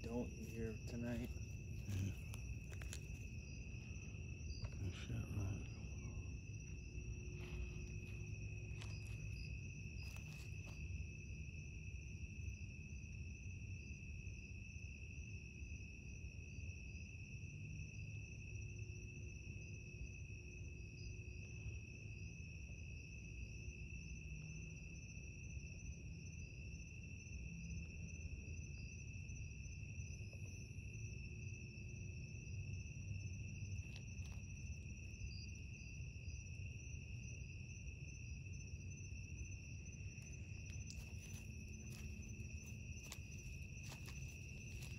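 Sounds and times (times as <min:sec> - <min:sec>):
faint low rumble: 0:00.0 - 0:11.6, 0:30.2 - 0:44.9
night insects trilling: 0:00.0 - 0:44.9.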